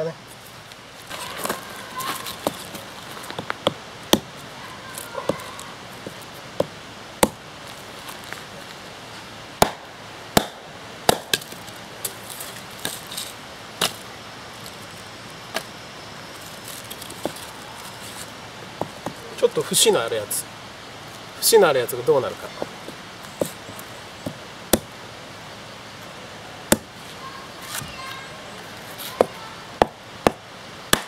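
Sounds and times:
hatchet chopping wood: 3.4 - 4.4, 6.6 - 7.4, 9.6 - 11.6, 24.2 - 24.9, 26.7 - 26.9, 29.2 - 31.0.

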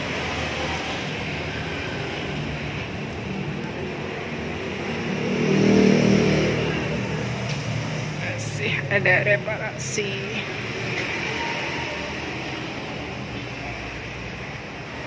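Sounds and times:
vehicle engine rumble: 0.0 - 15.0.

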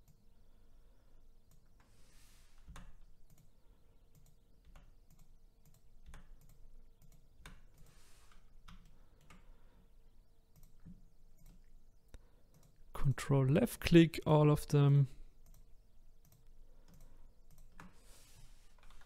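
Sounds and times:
keyboard and mouse clicks: 2.6 - 9.5, 10.5 - 12.8, 15.4 - 18.1, 18.7 - 19.0.

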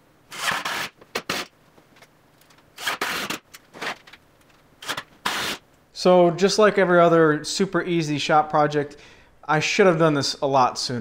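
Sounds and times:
cordless drill driving screws: 0.3 - 1.5, 2.8 - 3.4.

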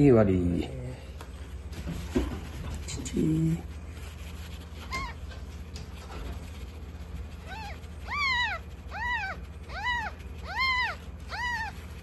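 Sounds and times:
kitten mewing: 7.4 - 12.0.

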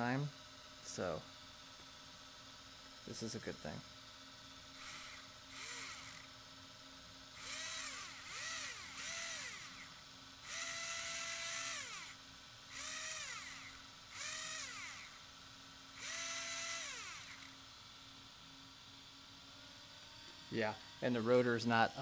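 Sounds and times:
faint steady hum: 0.0 - 22.0
electric motor whining: 4.8 - 6.3, 7.4 - 15.2, 16.0 - 17.6.

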